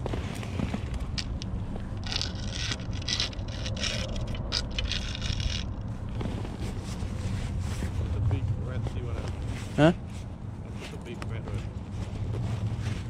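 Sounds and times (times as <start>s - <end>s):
scraping and rustling: 0.0s - 13.0s
steady low rumble: 0.0s - 13.0s.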